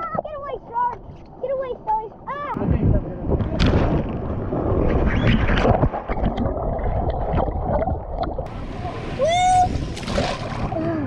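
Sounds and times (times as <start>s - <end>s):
sudden splashes: 3.4s - 11.0s
water rushing and splashing: 5.5s - 11.0s.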